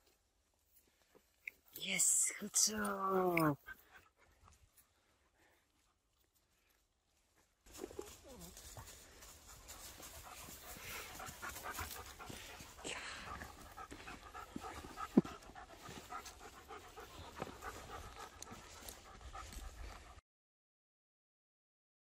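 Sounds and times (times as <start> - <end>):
dog panting: 3.6 - 6.8, 7.7 - 20.2.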